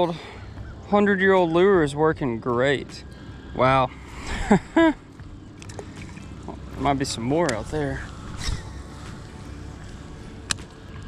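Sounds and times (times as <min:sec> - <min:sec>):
low background rumble: 0:00.0 - 0:11.0
fishing rod swish: 0:07.6 - 0:09.2.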